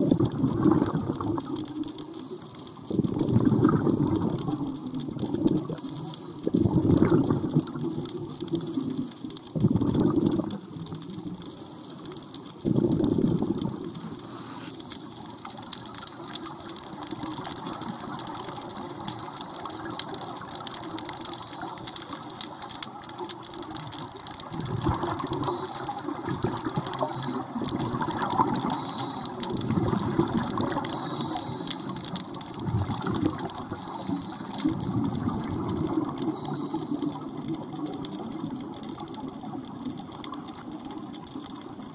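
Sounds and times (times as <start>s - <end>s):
air bubbling underwater: 0.0s - 1.6s, 2.9s - 5.8s, 6.5s - 8.4s, 9.6s - 10.9s, 12.6s - 14.0s, 24.5s - 28.8s, 29.4s - 31.3s, 32.3s - 33.8s.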